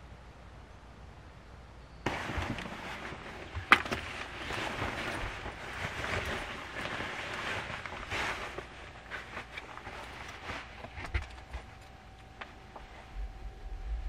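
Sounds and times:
nylon rain jacket rustling: 2.1s - 13.2s.

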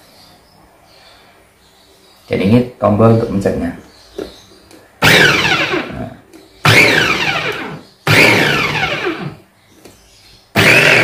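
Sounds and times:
electric chopper motor whine: 5.0s - 9.4s, 10.6s - 11.0s.

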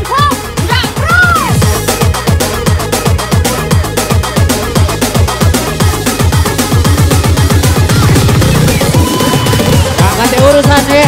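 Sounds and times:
fast kick-drum beat: 0.0s - 11.0s
loud electronic house music: 0.0s - 11.0s.

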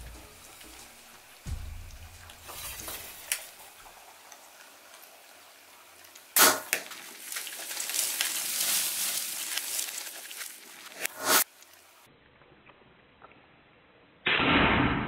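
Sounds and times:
bow shot: 6.4s - 6.8s, 14.2s - 15.0s
hooves scuffling in brush: 6.8s - 11.1s.

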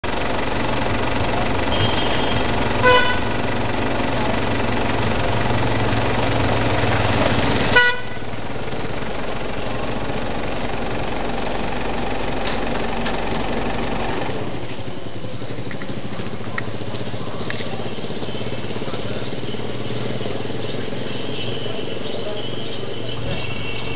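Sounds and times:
outdoor street noise: 0.0s - 23.9s
vehicle horn toots: 1.7s - 3.3s, 7.7s - 8.3s, 21.1s - 23.9s.

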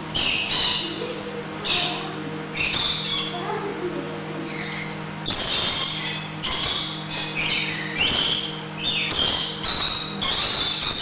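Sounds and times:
lorikeets screeching: 0.0s - 1.0s, 1.6s - 3.4s, 4.4s - 11.0s.

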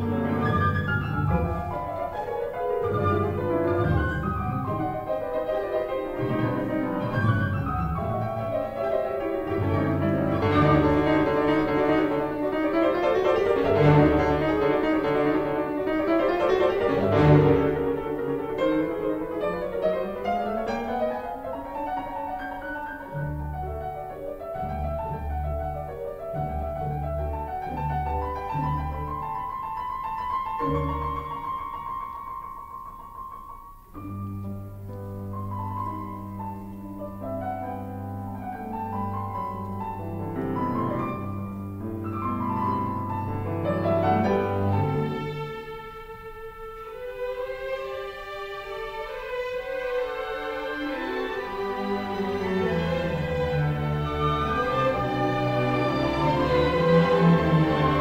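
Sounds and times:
instrumental piano music: 0.0s - 47.7s, 48.6s - 58.0s.

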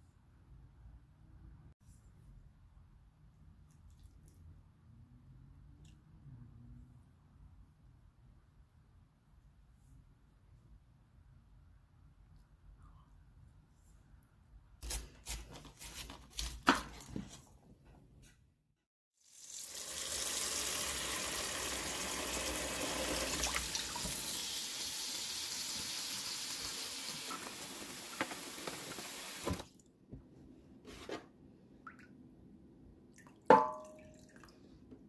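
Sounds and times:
tap water running into bowl: 19.5s - 29.6s.

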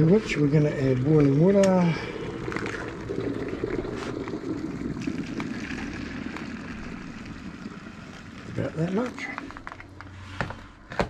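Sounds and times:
water pouring and splashing into bowl: 0.0s - 9.7s
water frothing: 0.0s - 10.2s.

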